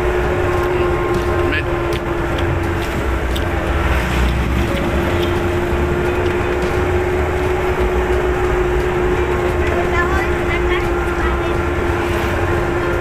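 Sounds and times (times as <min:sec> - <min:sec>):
constant hum: 0:00.0 - 0:13.0
vehicle engine and road rumble: 0:00.0 - 0:13.0.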